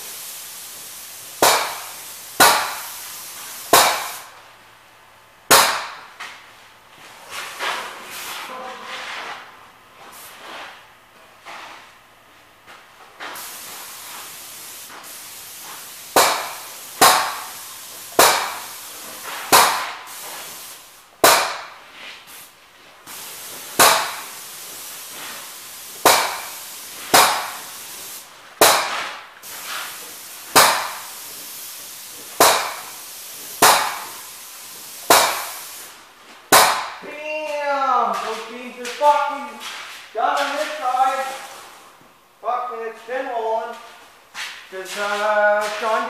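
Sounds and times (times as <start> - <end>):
spray gun hissing: 0.0 - 4.4, 13.4 - 37.0, 40.7 - 41.9
loud sharp ringing bangs: 1.4 - 2.8, 5.5 - 6.1, 21.2 - 21.8, 23.8 - 24.2, 36.5 - 37.0.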